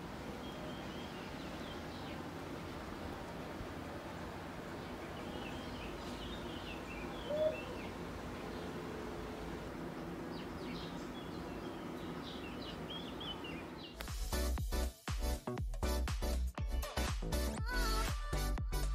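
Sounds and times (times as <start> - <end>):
small birds chirping: 0.0 - 14.0
steady background hum: 0.0 - 14.0.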